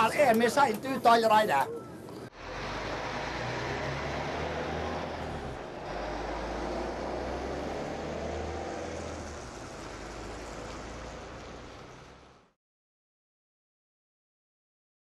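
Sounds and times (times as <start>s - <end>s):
bus diesel engine accelerating: 2.3s - 12.6s.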